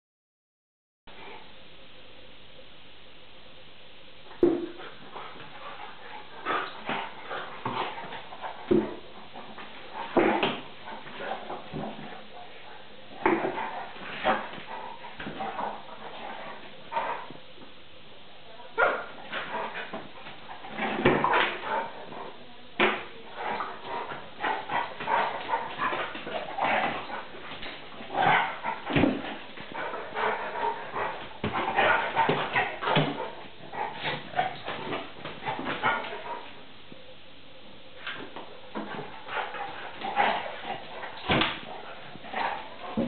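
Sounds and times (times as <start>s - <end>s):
dogs play-fighting vocalisations: 18.8s - 36.6s, 38.8s - 43.0s.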